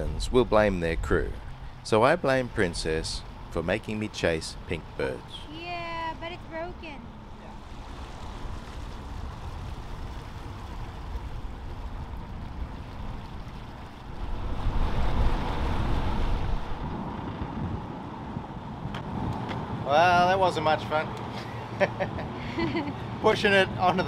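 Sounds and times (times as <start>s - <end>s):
rudder blade dragging on water: 0.0s - 17.4s
water churning and rushing: 0.0s - 24.0s
wind buffeting microphone: 5.4s - 20.4s.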